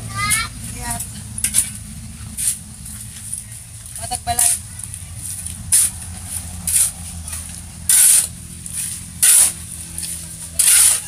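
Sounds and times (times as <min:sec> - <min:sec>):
shovel scraping wet concrete: 0:01.0 - 0:03.4, 0:04.3 - 0:11.0.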